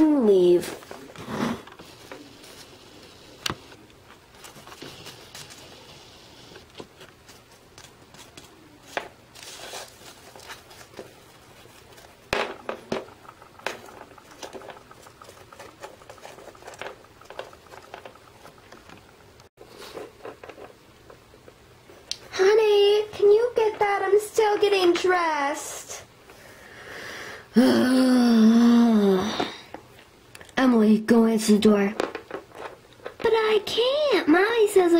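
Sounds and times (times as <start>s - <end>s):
toys tapping on wooden floor: 12.3s - 19.1s.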